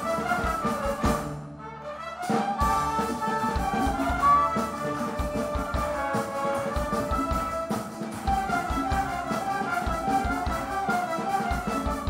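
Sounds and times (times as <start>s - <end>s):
double basses: 0.0s - 9.3s
violins: 0.0s - 12.0s.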